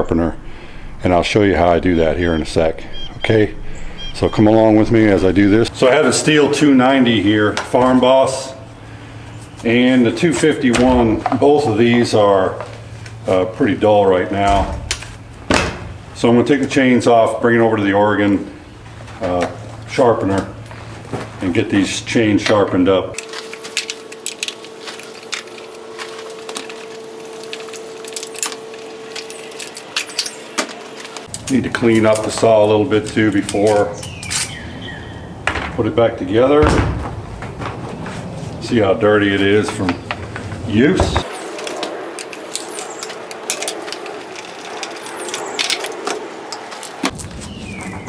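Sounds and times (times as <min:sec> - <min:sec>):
steady hum: 0:00.0 - 0:07.3, 0:23.2 - 0:31.3, 0:41.2 - 0:47.2
clicks and metal rattles: 0:41.2 - 0:47.1
hissing scrubbing noise: 0:41.2 - 0:47.1.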